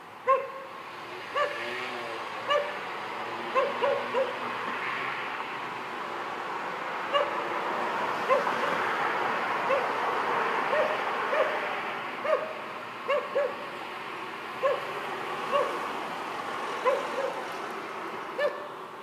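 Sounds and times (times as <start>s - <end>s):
dog yapping: 0.3s - 0.7s, 1.4s - 1.6s, 2.5s - 2.8s, 3.6s - 4.4s, 7.1s - 7.4s, 9.7s - 9.9s, 10.7s - 11.6s, 12.2s - 13.6s, 14.6s - 14.9s, 15.5s - 15.8s, 16.8s - 17.4s, 18.4s - 18.7s.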